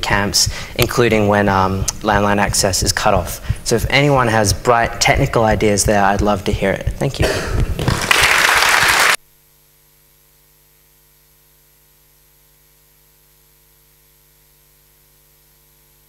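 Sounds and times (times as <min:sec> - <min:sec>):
faint electrical hum: 0:00.0 - 0:16.0
applause: 0:07.8 - 0:09.2.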